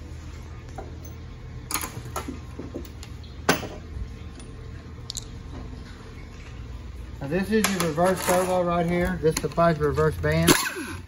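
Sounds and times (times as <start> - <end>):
low shop hum: 0.0 - 11.0
metal parts knocking on workbench: 3.5 - 3.8.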